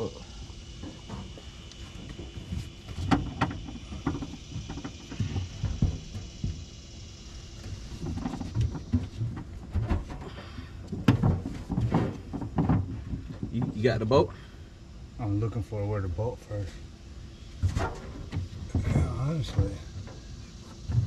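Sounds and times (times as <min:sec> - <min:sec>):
knocks and clunks of fuel tank: 0:08.0 - 0:13.8.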